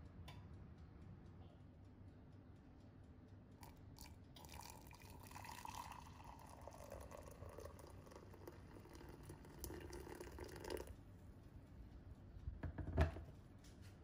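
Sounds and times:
water pouring into a mug: 4.0s - 11.0s.

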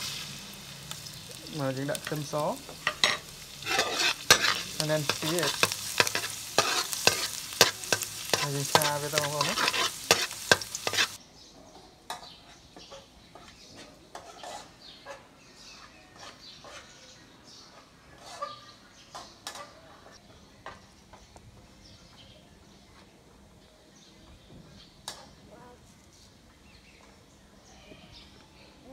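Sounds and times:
wok sizzling and stirring: 0.0s - 11.2s, 12.1s - 15.0s, 15.6s - 17.0s
bird chirps and clucks: 2.8s - 21.4s.

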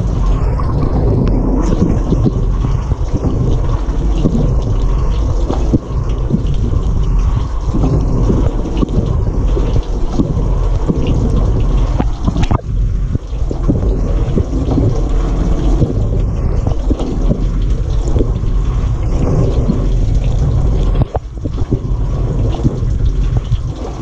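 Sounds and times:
dishwasher water splashing: 0.0s - 24.0s
low rumble: 0.0s - 24.0s.

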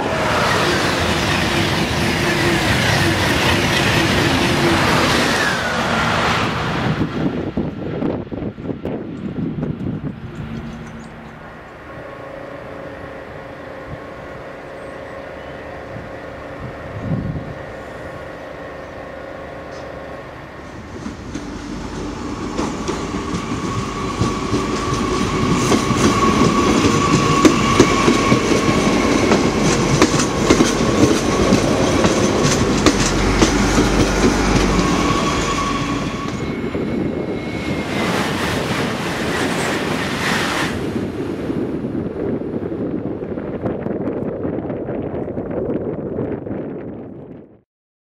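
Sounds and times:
rushing wind-like noise: 0.0s - 47.6s
train wheels clicking on rails: 20.7s - 36.7s.

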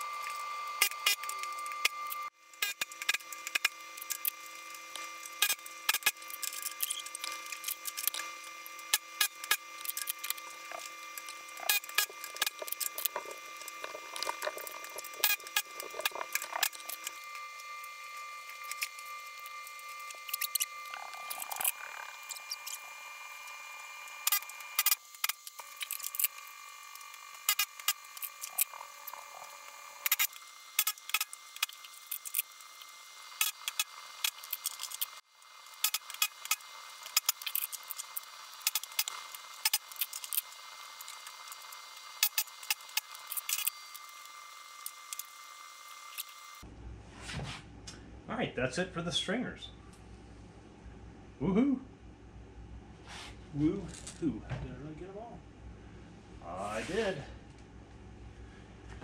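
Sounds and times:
steady high hum: 0.0s - 59.0s.

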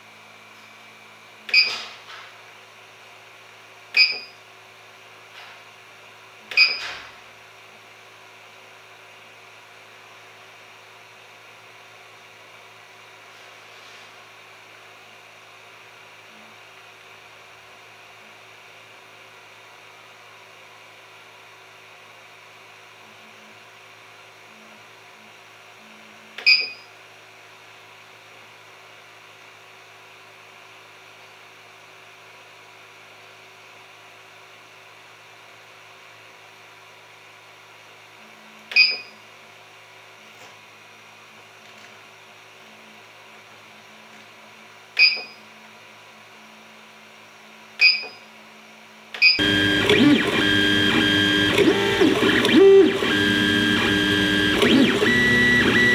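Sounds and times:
short electronic beeps: 4.0s - 4.4s, 6.6s - 6.8s, 47.8s - 48.2s
printer stepper motors whirring: 49.4s - 55.9s.

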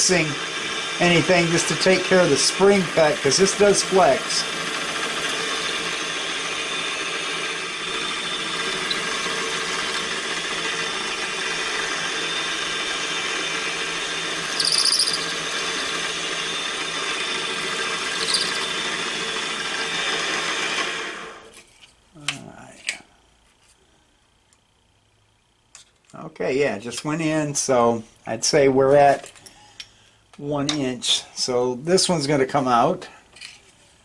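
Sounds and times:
milling machine spindle running: 0.0s - 21.4s
high squeals from cutter: 8.1s - 10.3s, 14.4s - 15.9s, 17.5s - 18.9s.

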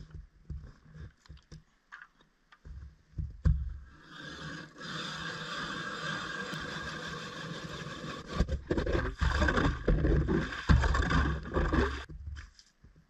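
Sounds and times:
ice auger scraping through ice: 4.0s - 12.1s.

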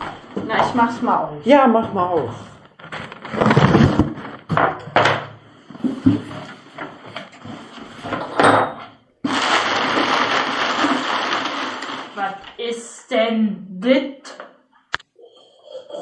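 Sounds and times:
cardboard parcel knocks and rustles: 2.8s - 5.1s.

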